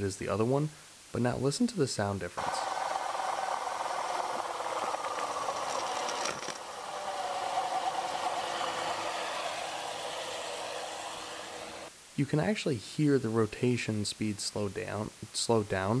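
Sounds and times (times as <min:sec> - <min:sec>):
spraying water hiss and rattle: 0:02.4 - 0:11.9
turbine whine: 0:02.4 - 0:11.9.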